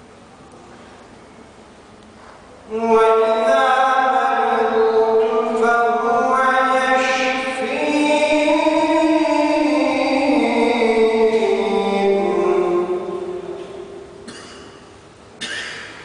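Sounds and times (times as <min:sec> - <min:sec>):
man reciting melodically: 0:02.6 - 0:14.3.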